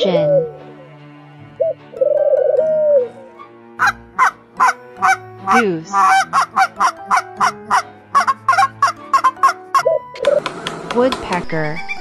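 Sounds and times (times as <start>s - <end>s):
goose honking: 3.8s - 10.0s.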